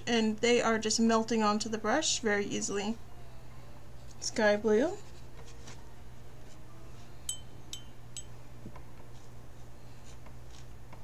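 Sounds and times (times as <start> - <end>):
steady low hum: 0.0 - 11.0
light ringing clinks: 7.3 - 8.4.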